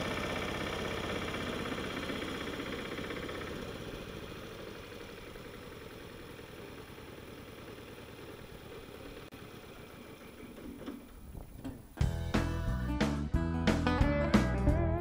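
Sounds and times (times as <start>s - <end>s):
mower engine running: 0.0s - 13.1s
guitar music: 12.0s - 15.0s.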